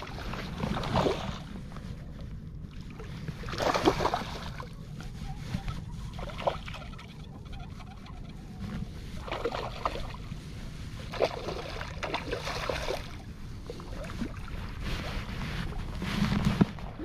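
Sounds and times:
fish splashing in water: 0.0s - 1.5s, 2.8s - 4.8s, 9.2s - 10.4s, 11.0s - 14.8s
steady low rumble: 0.0s - 17.0s.

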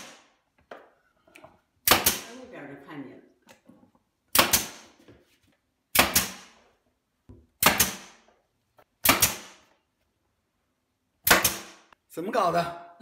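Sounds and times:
nail gun firing: 0.0s - 0.3s, 1.8s - 2.3s, 4.3s - 5.0s, 5.9s - 6.6s, 7.6s - 8.3s, 9.0s - 9.7s, 11.2s - 11.9s.

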